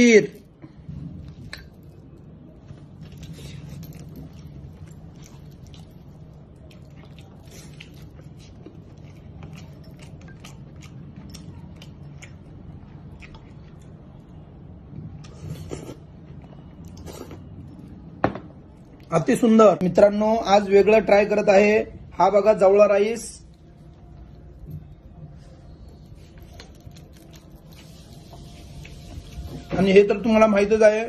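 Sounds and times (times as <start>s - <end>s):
man chewing: 2.9s - 14.3s, 15.0s - 18.0s, 25.7s - 29.7s
man sipping soup: 15.2s - 16.2s.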